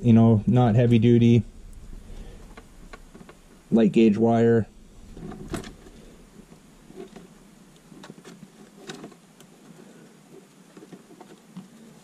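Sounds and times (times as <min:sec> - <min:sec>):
wire rustling: 0:00.7 - 0:09.8.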